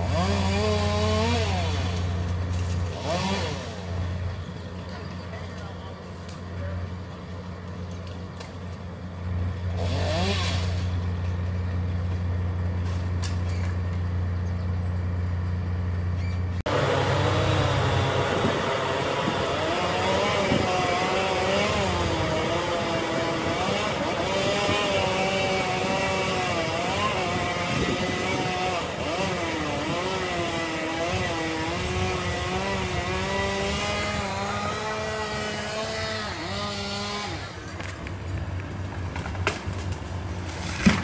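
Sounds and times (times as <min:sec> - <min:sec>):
low engine drone: 0:10.4 - 0:22.6.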